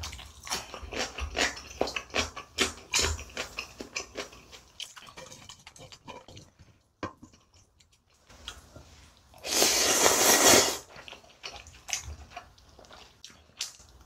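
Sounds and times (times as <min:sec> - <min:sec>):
loud slurp of noodles: 0:09.4 - 0:10.9.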